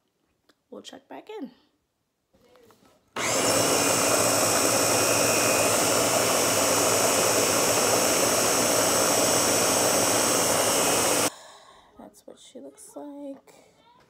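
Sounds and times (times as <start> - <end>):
food processor blending: 3.2 - 11.3.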